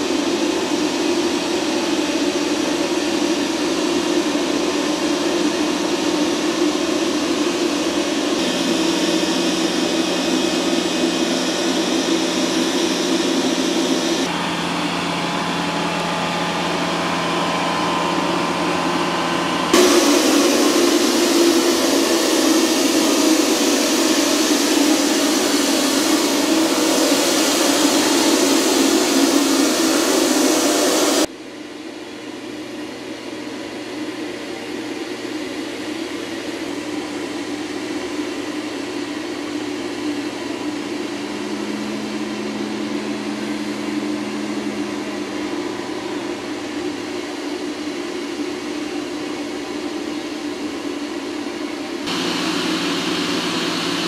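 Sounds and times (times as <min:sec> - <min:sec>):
low drone: 0:00.0 - 0:31.3, 0:39.1 - 0:48.4, 0:52.1 - 0:54.0
machinery rushing roar: 0:00.0 - 0:31.3, 0:36.3 - 0:54.0
tow tractor engine hum: 0:00.0 - 0:31.3, 0:39.5 - 0:47.8, 0:52.1 - 0:54.0.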